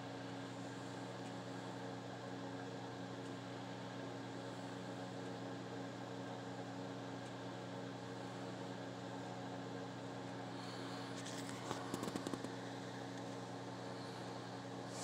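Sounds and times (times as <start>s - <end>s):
steady mechanical hum: 0.0s - 15.0s
quick clicks and rustles: 11.2s - 12.6s.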